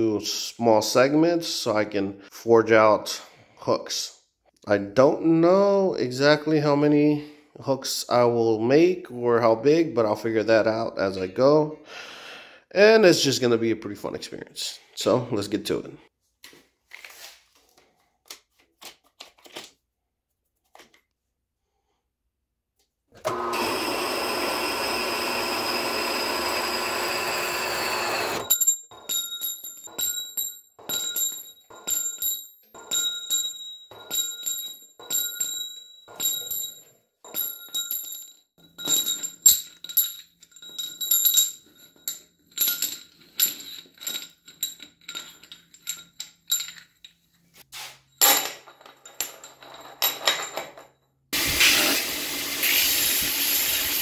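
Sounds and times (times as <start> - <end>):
steel bars clinking: 28.4 - 47.4.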